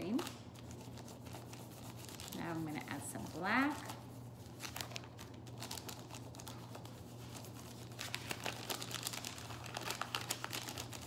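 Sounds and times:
crayon rubbing on paper: 0:01.0 - 0:02.9
paper bag crinkling: 0:03.8 - 0:11.0.

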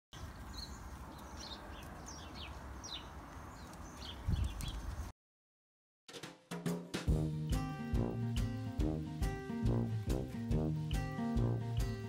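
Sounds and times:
small birds chirping: 0:00.2 - 0:05.1
wind rumble on microphone: 0:04.0 - 0:05.1.

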